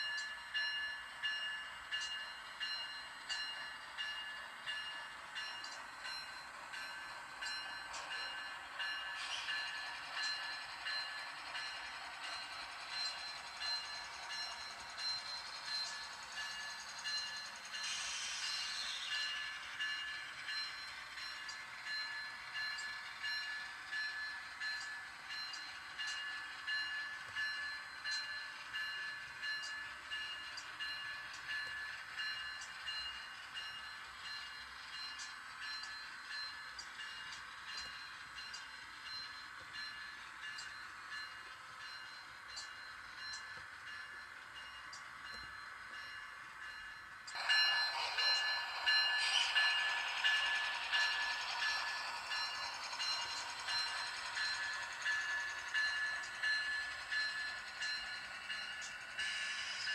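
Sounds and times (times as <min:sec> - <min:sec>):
model train motor whine: 0:07.0 - 0:42.0, 0:45.2 - 0:59.9
wheels clicking over rail joints: 0:47.2 - 0:59.9.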